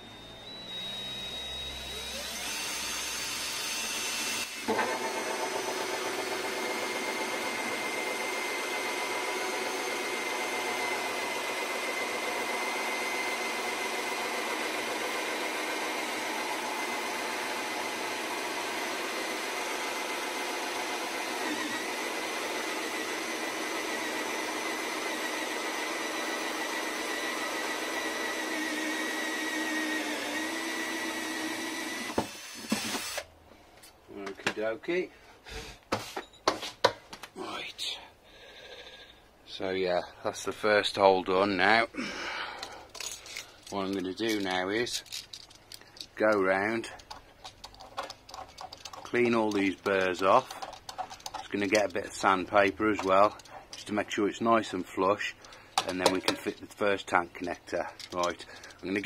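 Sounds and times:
cordless drill whining: 0.0 - 33.4, 54.6 - 59.0
saw teeth grating plastic: 43.0 - 54.1.

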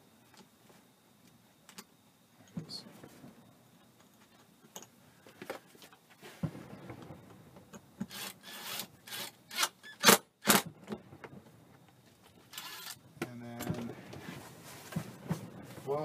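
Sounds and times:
cordless drill driving screw into wood: 8.0 - 10.7, 12.5 - 13.0.

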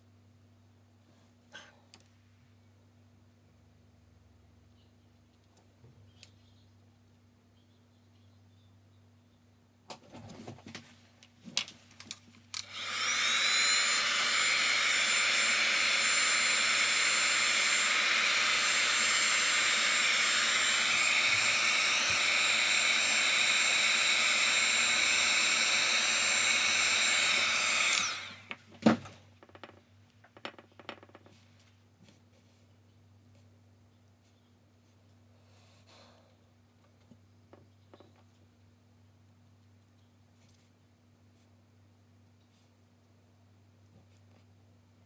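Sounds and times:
hot-air dryer blowing: 12.6 - 28.6.

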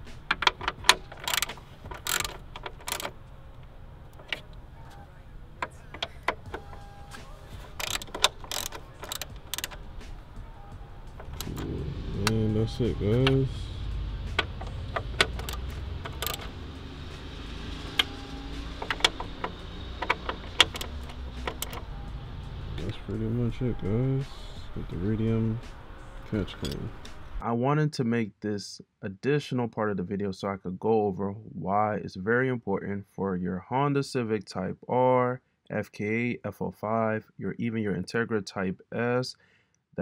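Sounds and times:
low steady hum: 0.0 - 27.4.

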